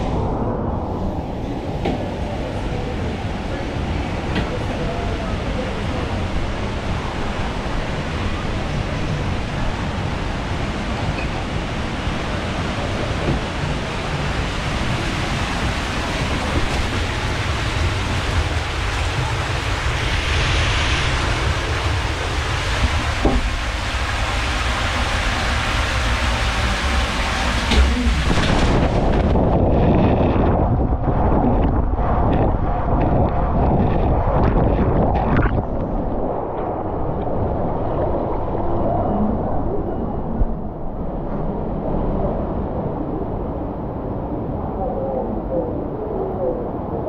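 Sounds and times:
water rushing through slide tube: 0.0s - 39.8s
rushing hissing water: 0.6s - 29.8s.

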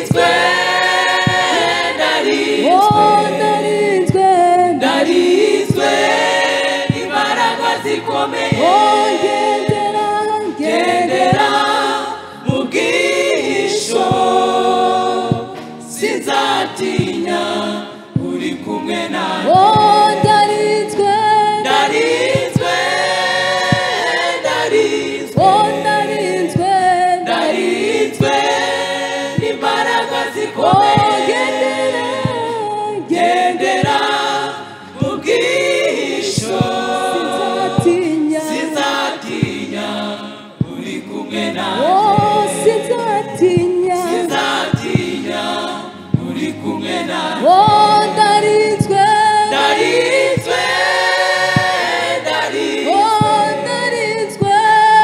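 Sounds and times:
women's gospel choir singing: 0.0s - 55.0s
hands clapping: 15.3s - 15.8s.

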